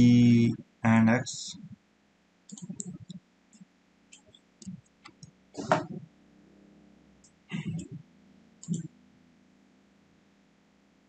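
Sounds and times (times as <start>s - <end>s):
keyboard and mouse clicking: 2.5s - 3.2s, 4.1s - 6.0s, 8.6s - 8.9s.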